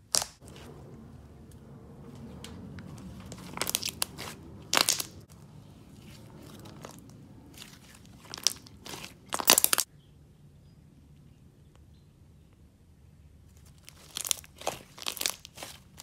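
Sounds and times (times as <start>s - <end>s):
slime squished by hand: 2.8s - 5.2s, 6.0s - 9.9s, 13.6s - 16.0s.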